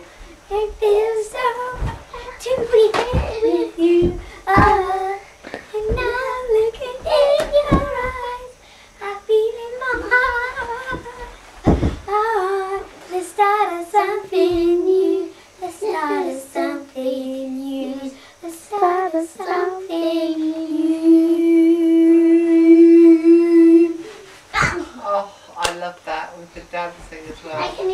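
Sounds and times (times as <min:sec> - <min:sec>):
children singing: 0:00.0 - 0:18.2
low thump: 0:00.8 - 0:05.2, 0:05.8 - 0:08.4, 0:09.8 - 0:12.2.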